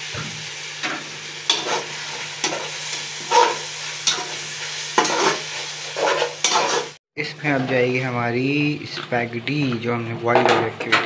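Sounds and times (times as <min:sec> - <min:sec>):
food sizzling: 0:00.0 - 0:09.9
spatula scraping and knocking pan: 0:00.1 - 0:08.1.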